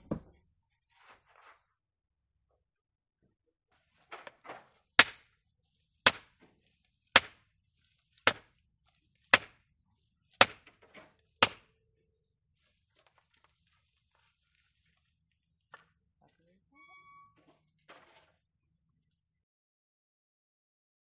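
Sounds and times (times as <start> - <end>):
hammer striking wooden board: 5.0 - 5.3, 6.1 - 6.3, 7.2 - 7.4, 8.3 - 8.5, 9.3 - 9.6, 10.4 - 10.8, 11.4 - 11.7.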